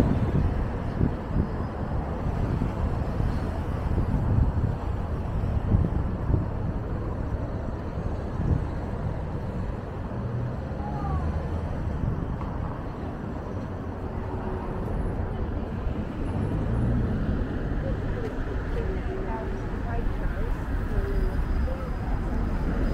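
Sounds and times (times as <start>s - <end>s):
car engines passing: 0.0s - 22.9s.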